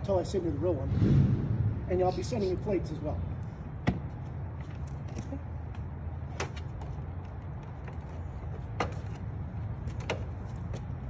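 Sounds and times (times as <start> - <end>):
steady low rumble: 0.0 - 6.2.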